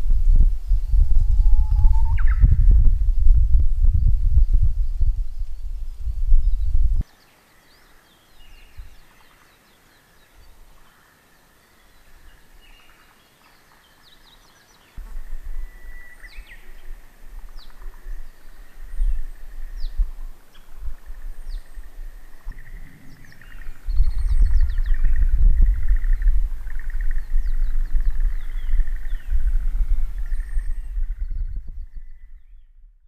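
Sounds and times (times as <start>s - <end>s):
low rumble: 0.0s - 7.0s, 15.0s - 33.0s
songbirds chirping: 3.4s - 32.9s.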